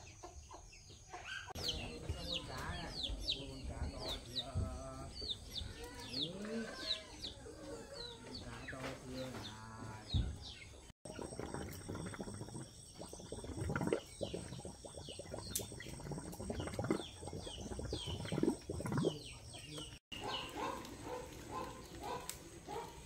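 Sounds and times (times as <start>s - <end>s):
chicks peeping: 0.1s - 9.5s.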